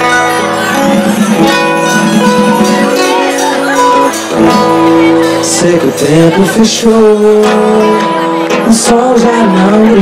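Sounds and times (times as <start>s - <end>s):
samba percussion: 0.0s - 7.9s
strummed acoustic guitar chords: 0.0s - 10.0s.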